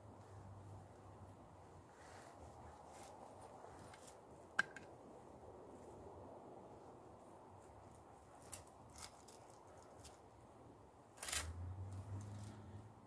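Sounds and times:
leather belt rustling through buckle: 2.0 - 4.2, 8.3 - 10.2.

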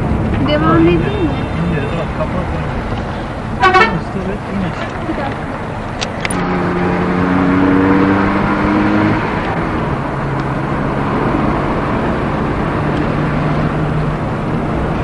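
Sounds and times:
car road and engine noise: 0.0 - 15.0
car horn: 0.6 - 2.2, 3.6 - 4.2.

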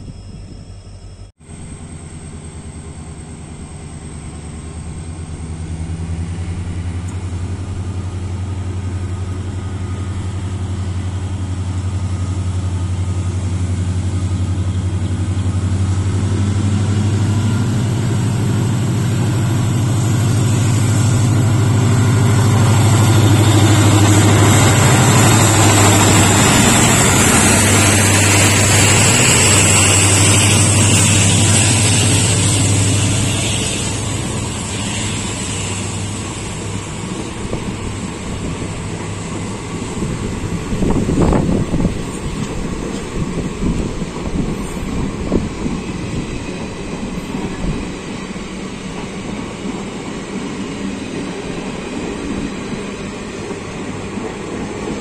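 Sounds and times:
diesel locomotive engine drone: 0.0 - 55.0
train coaches rolling past: 0.0 - 55.0.

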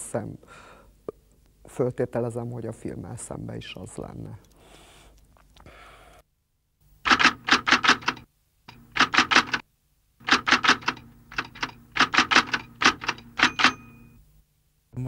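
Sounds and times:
typewriter keys striking: 7.1 - 8.2, 8.9 - 9.6, 10.2 - 14.0.

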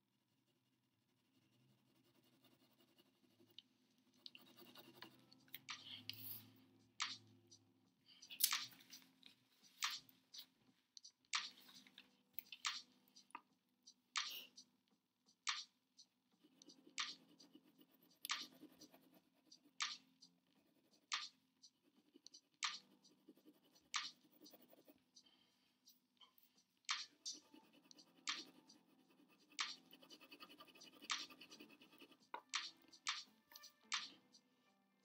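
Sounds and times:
pen scratching on paper: 0.3 - 7.6, 15.3 - 25.2, 25.8 - 34.4.

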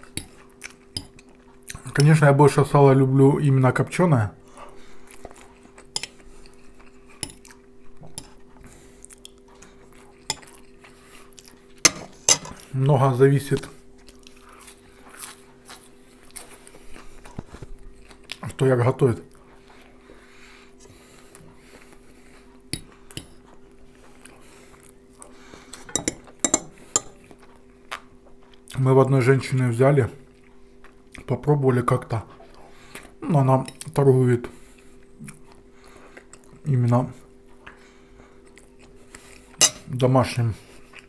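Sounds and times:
faint steady hum: 0.0 - 41.0
quiet eating sounds: 0.0 - 41.0
fork clinking on a ceramic plate: 25.9 - 27.2, 39.6 - 39.9
fork clinking on plate: 39.6 - 39.9.

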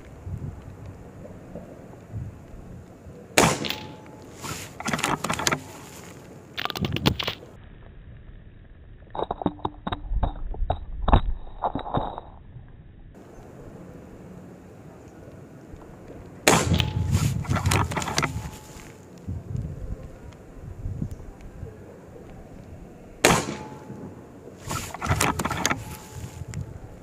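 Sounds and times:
air rifle shot crack: 3.4 - 5.8, 16.5 - 18.5, 23.2 - 26.1
clicks and knocks: 3.6 - 7.4, 16.7 - 18.7, 24.7 - 26.3.

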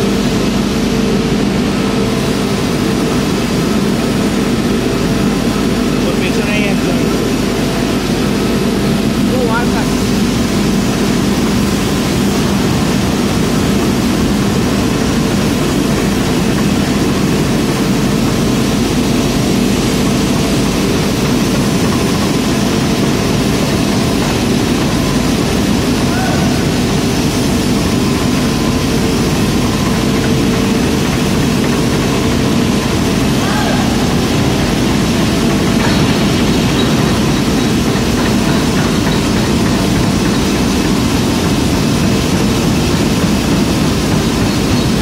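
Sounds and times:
forging machine running: 0.0 - 45.0.

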